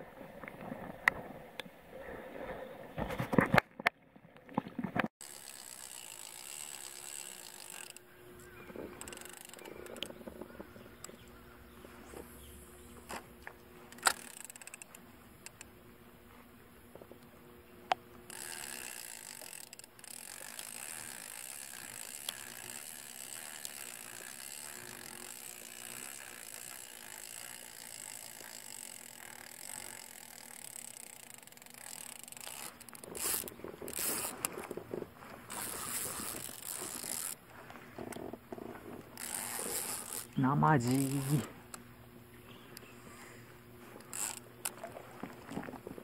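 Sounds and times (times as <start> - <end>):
fishing reel cranking: 5.2 - 10.2, 13.8 - 15.7, 18.3 - 34.8, 35.5 - 37.4, 38.0 - 41.8, 44.0 - 44.8.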